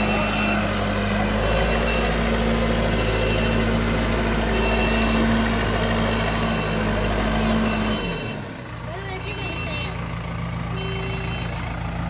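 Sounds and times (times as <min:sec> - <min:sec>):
reversing alarm beeping: 0:00.0 - 0:00.8, 0:01.4 - 0:08.5
diesel engine running under load: 0:00.0 - 0:12.0.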